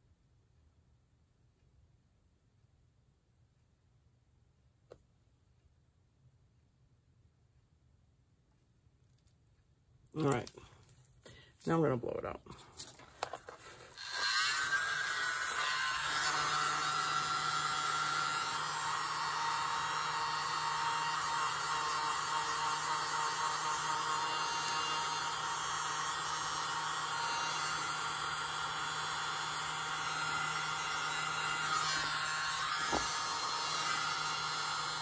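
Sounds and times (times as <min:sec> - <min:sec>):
hair dryer running: 0:23.4 - 0:35.0.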